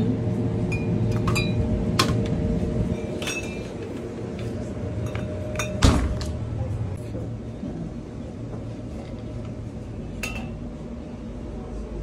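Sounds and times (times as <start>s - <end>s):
low hum: 0.0s - 12.0s
glass bottles clinking: 5.0s - 5.8s.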